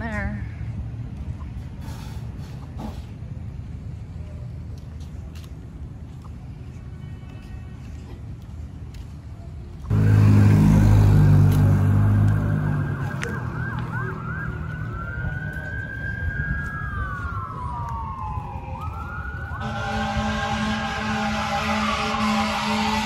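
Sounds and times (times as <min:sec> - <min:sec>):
steady engine hum: 0:00.0 - 0:23.0
vehicle engine running: 0:09.8 - 0:15.1
emergency vehicle siren: 0:09.9 - 0:23.0.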